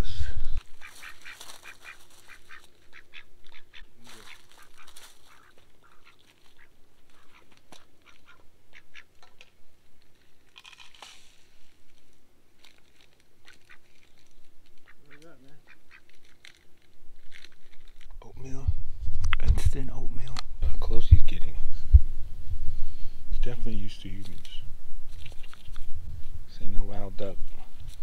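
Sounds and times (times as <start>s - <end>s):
waterfowl calling: 0.6s - 9.5s, 13.4s - 16.4s.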